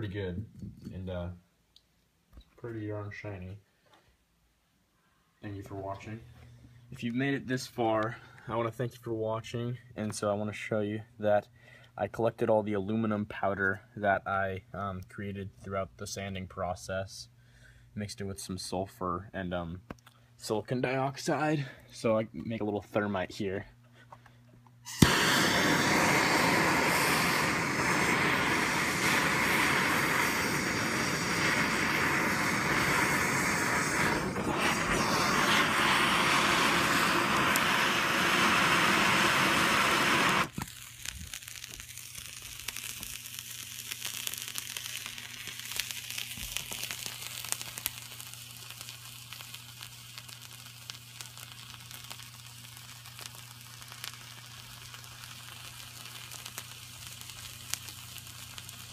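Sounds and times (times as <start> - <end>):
burning mixture crackling and fizzing: 24.8 - 58.9
gas torch hissing: 24.8 - 58.9.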